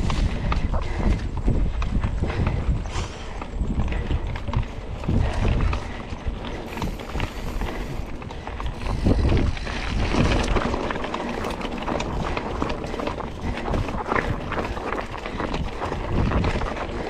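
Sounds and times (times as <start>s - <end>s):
bike rattles and knocks: 0.0s - 17.0s
bike tyre noise on dirt: 0.0s - 17.0s
wind buffeting microphone: 0.0s - 17.0s.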